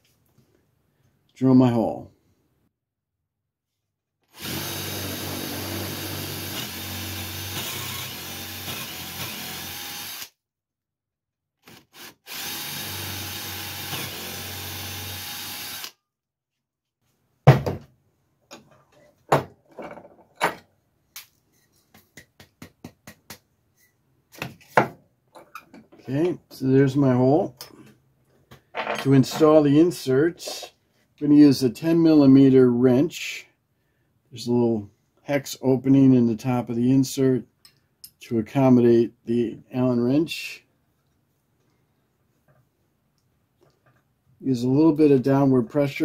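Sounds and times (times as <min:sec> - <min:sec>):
cordless drill boring wood: 0:04.2 - 0:10.3, 0:11.6 - 0:16.0
knocks and clunks: 0:17.4 - 0:20.7.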